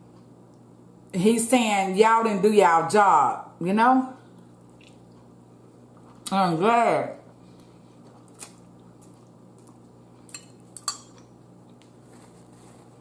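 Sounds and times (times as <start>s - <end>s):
faint steady hum: 0.0s - 13.0s
chewing: 4.4s - 6.3s, 7.5s - 12.4s.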